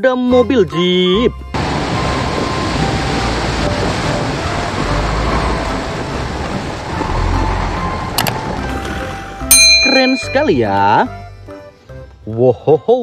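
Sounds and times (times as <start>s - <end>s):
vehicle engine tyre and wind noise: 1.5s - 10.4s.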